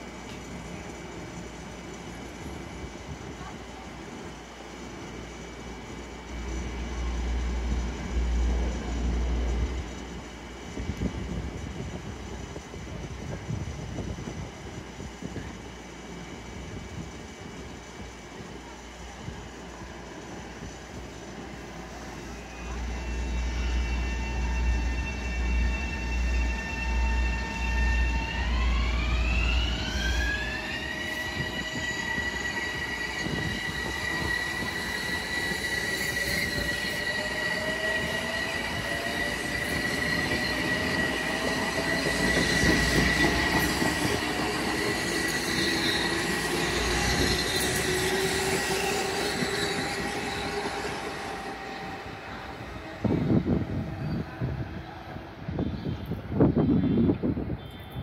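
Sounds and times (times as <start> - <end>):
wheels rumbling on rail: 0.0 - 58.0
electric train motor whine: 22.2 - 54.7.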